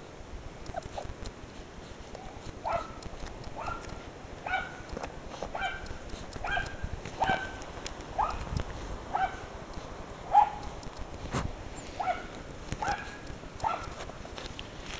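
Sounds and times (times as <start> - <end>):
light clicks and rustles: 0.6 - 9.0, 9.6 - 14.9
puppy yelping: 5.5 - 7.6, 11.8 - 14.0.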